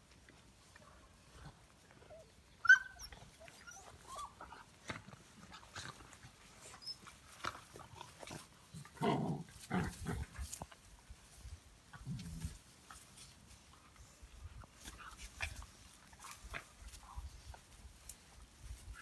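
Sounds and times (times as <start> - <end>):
puppies yipping: 2.0 - 4.6
puppy yelp: 2.1 - 4.5
puppies growling: 3.2 - 10.6.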